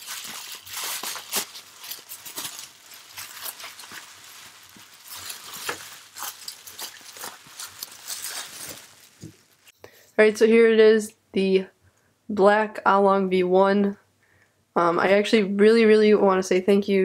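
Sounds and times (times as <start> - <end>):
bubble wrap crinkling: 0.0 - 9.7.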